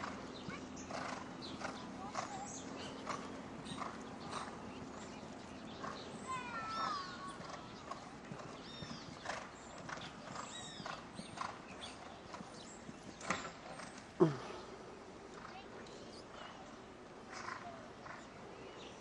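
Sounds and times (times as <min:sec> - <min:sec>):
horse hoofbeats on sand: 0:00.0 - 0:14.1.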